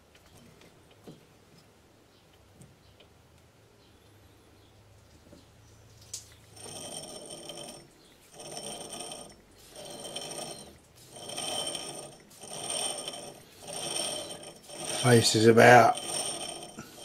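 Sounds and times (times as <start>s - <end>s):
lathe gearing whirring: 6.4s - 17.0s.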